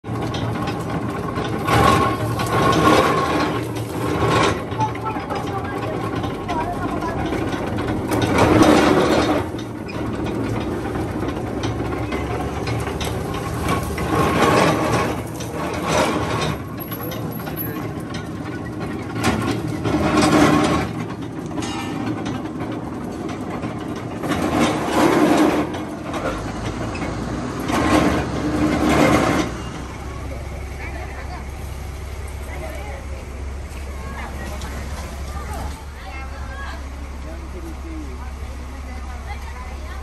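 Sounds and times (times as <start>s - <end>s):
juice crusher clattering: 0.0s - 31.2s.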